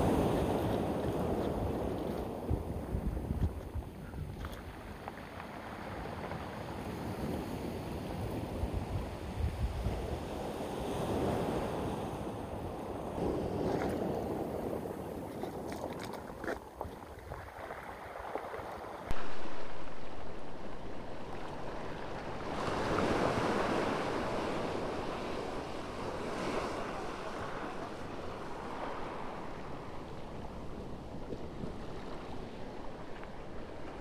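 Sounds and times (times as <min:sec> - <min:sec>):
wind buffeting microphone: 0:00.0 - 0:05.2, 0:05.8 - 0:34.0
ocean surf breaking: 0:17.5 - 0:34.0.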